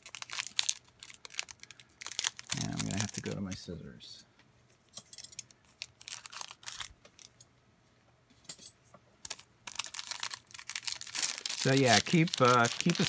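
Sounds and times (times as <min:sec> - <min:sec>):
foil wrapper crinkling: 0:00.0 - 0:03.4, 0:05.6 - 0:07.3, 0:09.2 - 0:13.0
scissors snipping foil pack: 0:09.3 - 0:13.0.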